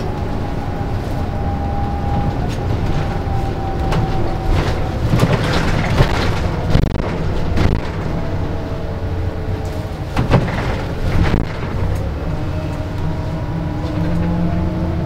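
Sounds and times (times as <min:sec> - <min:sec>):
bus engine and road rumble: 0:00.0 - 0:15.0
body knocks and rattles: 0:02.2 - 0:08.3, 0:09.8 - 0:12.0.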